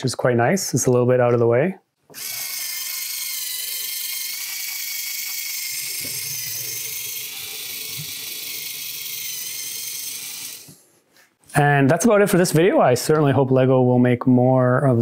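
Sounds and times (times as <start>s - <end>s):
motor and plastic gears whirring: 2.1s - 10.8s.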